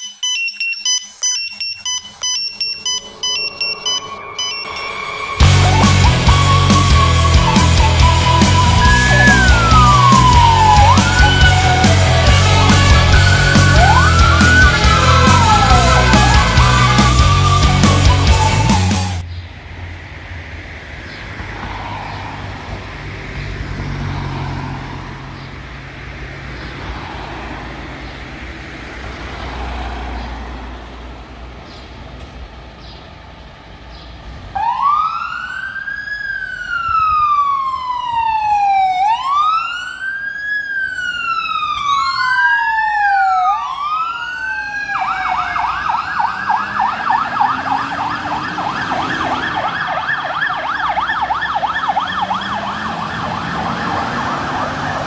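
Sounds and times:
fire engine sirens wailing: 0:00.0 - 0:19.2, 0:34.5 - 0:55.0
siren rapid yelp: 0:00.0 - 0:19.2, 0:34.6 - 0:55.0.

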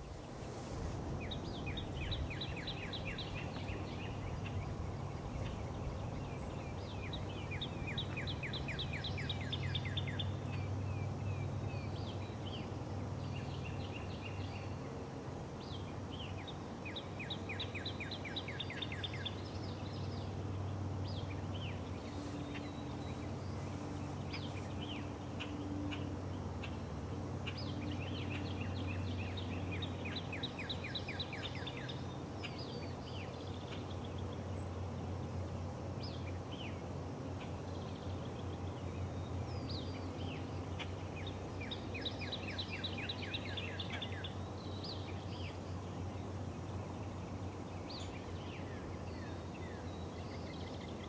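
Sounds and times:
songbirds trilling: 0:01.1 - 0:51.0.

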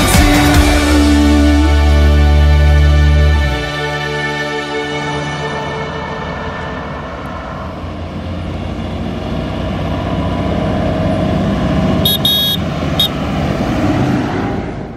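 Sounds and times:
tractor diesel engine passing: 0:00.0 - 0:14.9
short high-pitched toots: 0:12.1 - 0:13.2.

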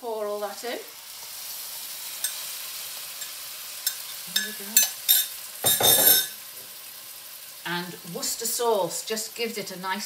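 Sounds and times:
filling sizzling in frying pan: 0:00.0 - 0:10.0
spoon clinking against pan: 0:03.2 - 0:06.4.

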